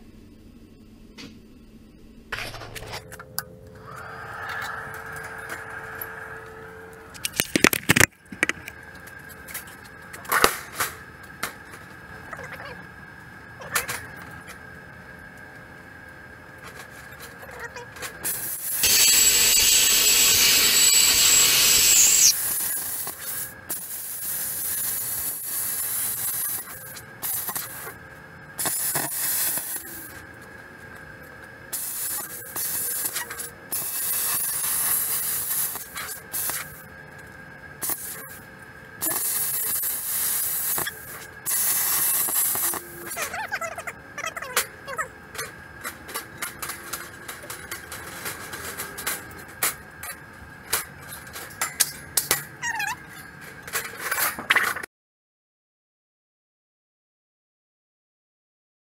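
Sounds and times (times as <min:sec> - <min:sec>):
faint steady whine: 0:00.0 - 0:43.3
plasma cutter air hissing: 0:18.2 - 0:27.9, 0:28.6 - 0:30.1, 0:31.7 - 0:36.8, 0:37.8 - 0:38.4, 0:39.0 - 0:42.9
high whistle: 0:18.8 - 0:22.4.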